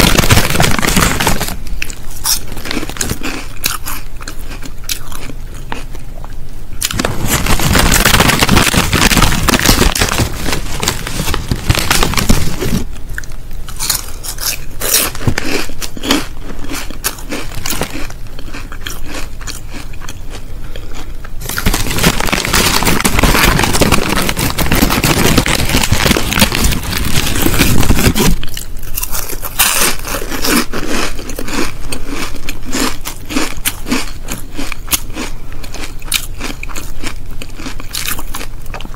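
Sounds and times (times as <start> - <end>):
crisp packet crinkling: 0.0 - 5.3, 6.8 - 20.0, 21.4 - 34.1
crisps crunching and chewing: 0.0 - 38.9.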